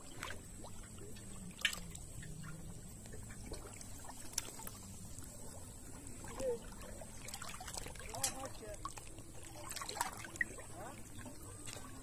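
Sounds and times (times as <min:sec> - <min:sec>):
river water sloshing: 0:00.0 - 0:12.0.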